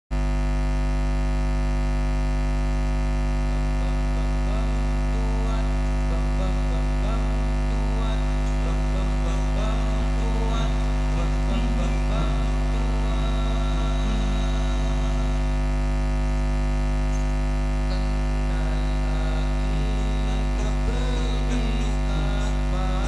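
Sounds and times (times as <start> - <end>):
electrical mains hum: 0.1 - 23.0.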